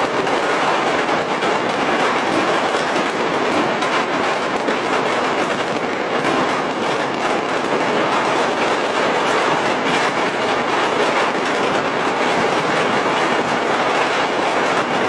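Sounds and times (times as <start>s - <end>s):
firecrackers crackling: 0.0s - 15.0s.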